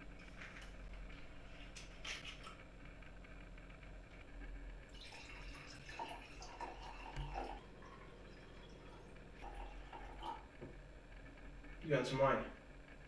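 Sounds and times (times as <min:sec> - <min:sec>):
wine pouring into glass: 0:04.9 - 0:10.4.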